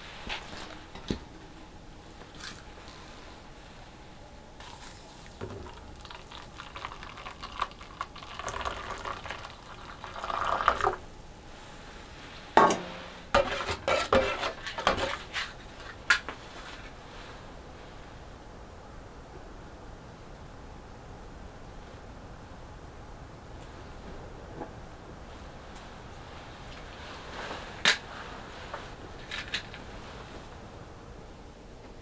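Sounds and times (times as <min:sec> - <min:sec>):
water pouring into metal mug: 0:04.6 - 0:11.0.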